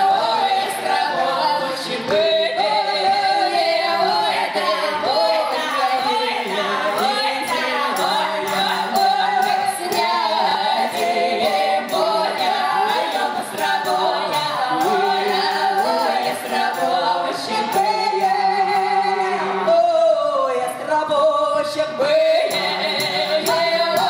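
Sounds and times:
folk choir singing: 0.0 - 24.0
percussive beat: 5.1 - 18.9, 22.4 - 24.0.

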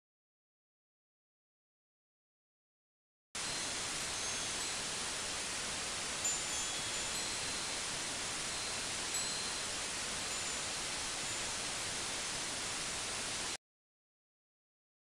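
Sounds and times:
static hiss: 3.4 - 13.6.

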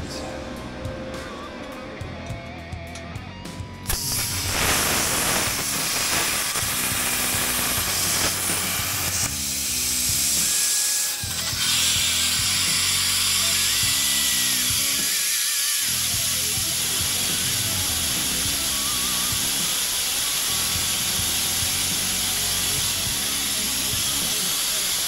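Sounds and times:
background music: 0.0 - 10.7
plasma cutter hissing: 3.9 - 25.0.

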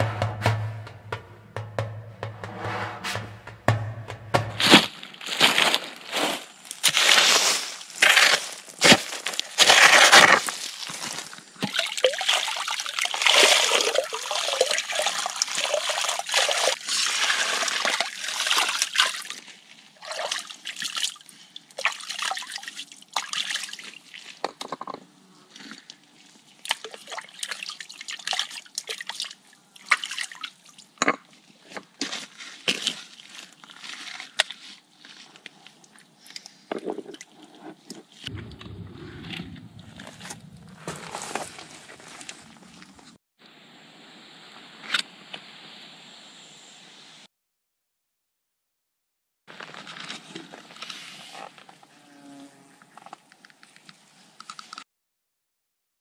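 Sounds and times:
knocks of stone and metal: 0.0 - 5.0
shovel scraping through gravel: 4.6 - 10.7
trickling water: 11.6 - 19.2.

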